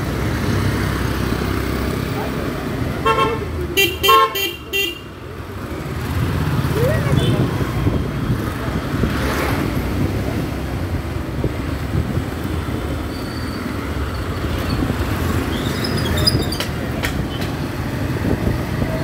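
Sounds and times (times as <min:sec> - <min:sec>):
wind on microphone: 0:17.3 - 0:19.0.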